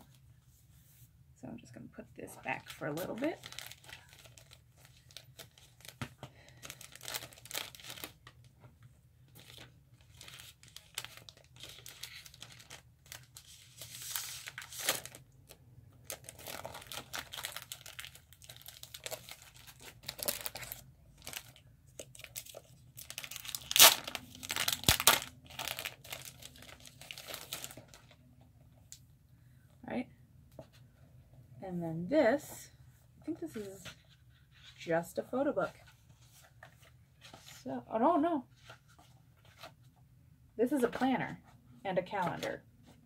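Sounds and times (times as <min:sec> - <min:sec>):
plastic packaging crinkling and tearing: 0:02.6 - 0:08.4, 0:09.4 - 0:15.2, 0:16.0 - 0:28.2.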